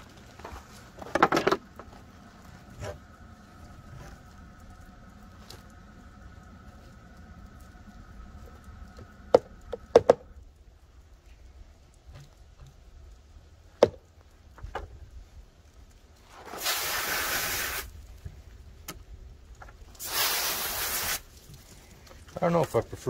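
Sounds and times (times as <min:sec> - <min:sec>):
water spray hissing: 0:16.3 - 0:18.1, 0:19.9 - 0:22.6.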